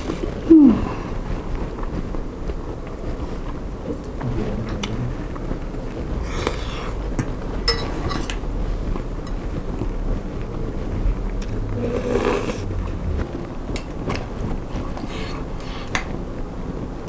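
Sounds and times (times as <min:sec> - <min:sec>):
close chewing: 0:00.0 - 0:16.8
steady low hum: 0:00.0 - 0:17.0
metal fork clinking in bowl: 0:07.7 - 0:08.3.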